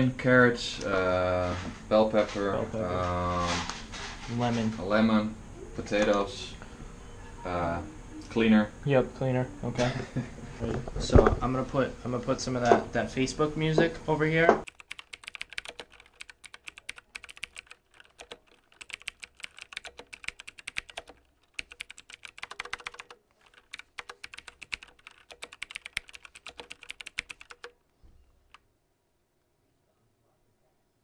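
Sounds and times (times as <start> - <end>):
typing on computer keyboard: 14.7 - 27.8.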